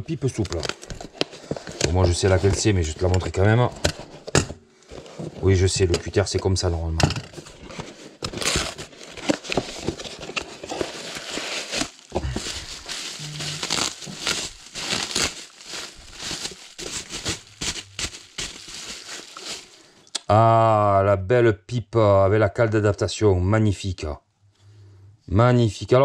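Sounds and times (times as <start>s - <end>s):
cardboard box handled: 7.3s - 19.7s
bubble wrap crackling: 8.3s - 20.0s.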